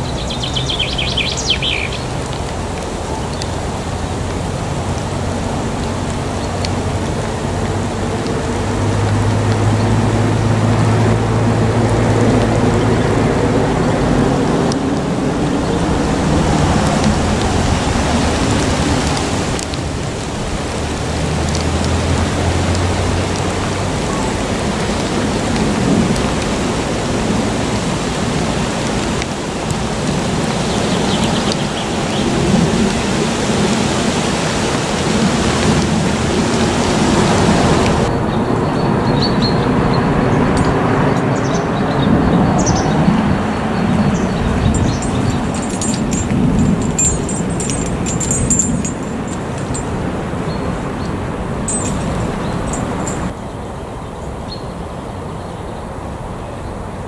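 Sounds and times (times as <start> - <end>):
wind and blown snow: 39.1 - 53.4.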